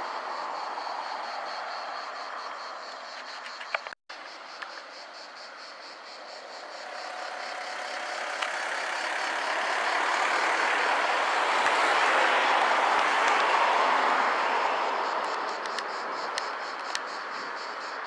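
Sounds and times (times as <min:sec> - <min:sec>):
insects pulsing: 0:00.0 - 0:18.0
passing cars: 0:06.1 - 0:18.0.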